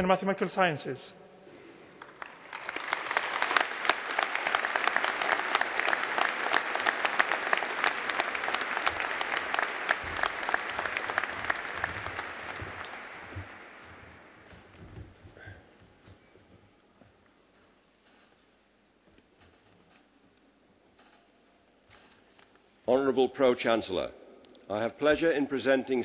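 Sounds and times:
large audience applauding: 2.0s - 14.8s.

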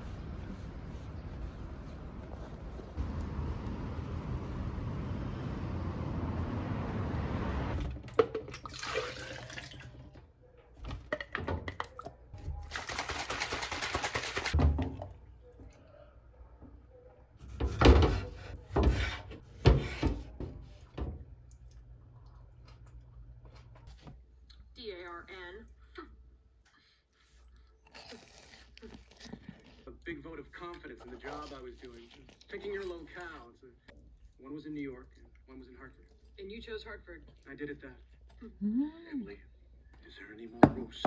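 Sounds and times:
traffic rumble: 0.0s - 7.8s
wind: 0.0s - 7.8s.

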